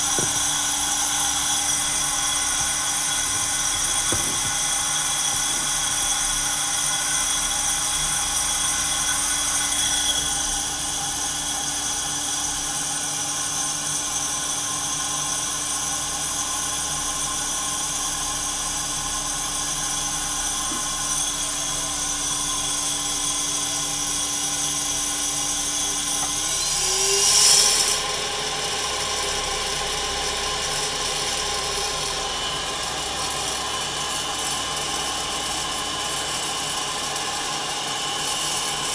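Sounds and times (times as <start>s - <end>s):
coffee roaster humming and whining: 0.0s - 38.9s.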